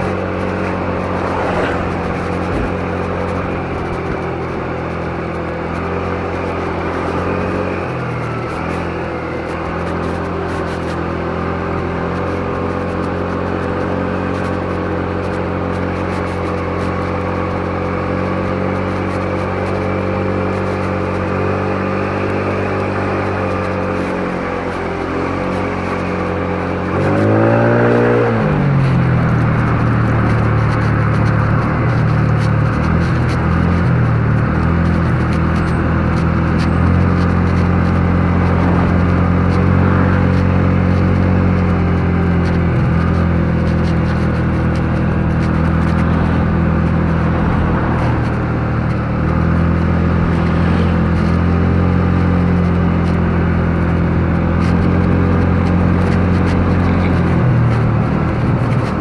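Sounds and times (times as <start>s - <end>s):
scooter engine running: 0.0s - 59.0s.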